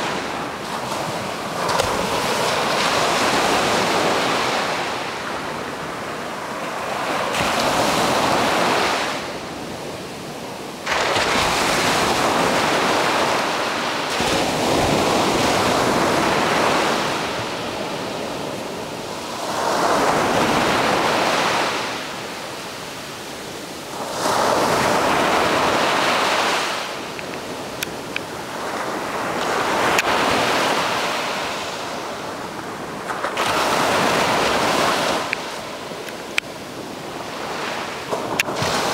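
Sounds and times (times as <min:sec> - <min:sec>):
ocean surf breaking on beach: 0:00.0 - 0:38.9.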